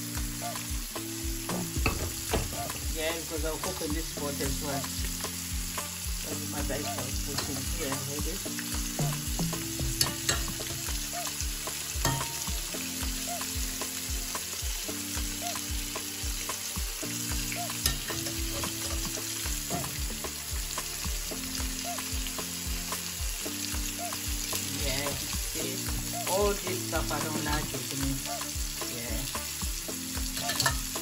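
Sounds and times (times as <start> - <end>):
oil sizzling in a pan: 0.0 - 31.0
soft music with steady beat: 0.0 - 31.0
spoon scraping a wire strainer: 30.4 - 30.8.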